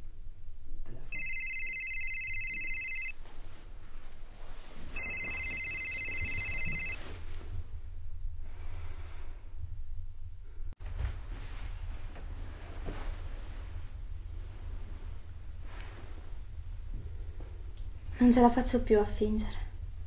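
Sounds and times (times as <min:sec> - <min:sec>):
mobile phone ringing: 0:01.1 - 0:03.2, 0:05.0 - 0:07.0.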